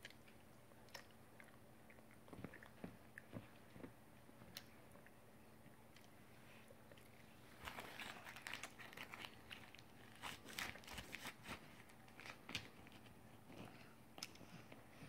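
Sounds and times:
candy wrapper crinkling: 7.6s - 13.1s.

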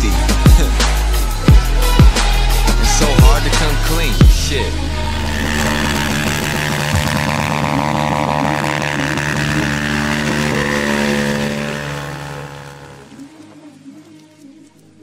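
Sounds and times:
motorcycle engine revving high: 2.8s - 13.4s.

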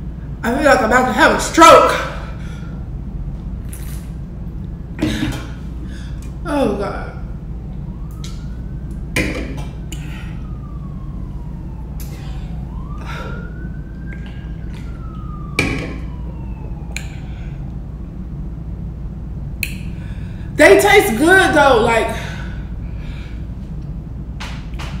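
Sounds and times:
steady low hum: 0.0s - 25.0s
emergency siren wailing: 4.8s - 23.8s.

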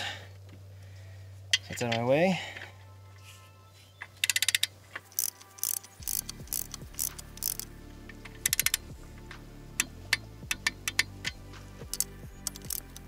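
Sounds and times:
torque wrench ratcheting clicks: 4.2s - 8.9s, 9.8s - 13.0s.

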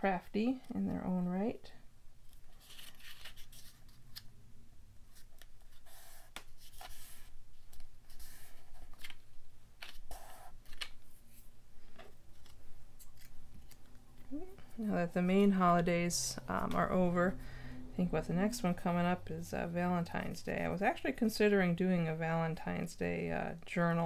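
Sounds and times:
paper rustling and rubbing: 2.3s - 4.3s, 5.1s - 11.6s.

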